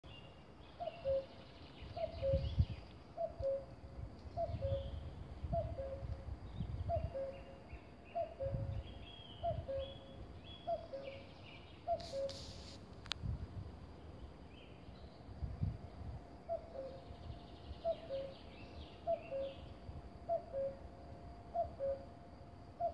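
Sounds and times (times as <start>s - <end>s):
songbirds chirping faintly: 0.0s - 22.9s
cuckoo calling: 0.7s - 6.1s, 6.8s - 12.6s, 16.4s - 17.1s, 17.7s - 20.9s, 21.5s - 22.1s.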